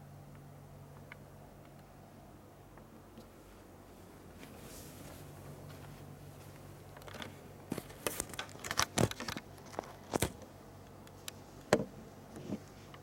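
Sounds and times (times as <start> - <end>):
faint low hum: 0.0 - 13.0
handling clicks and rustles: 4.4 - 13.0.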